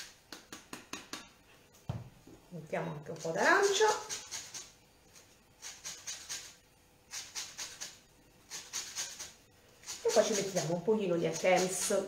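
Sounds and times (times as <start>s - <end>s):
scratchy grating strokes: 3.1s - 12.0s.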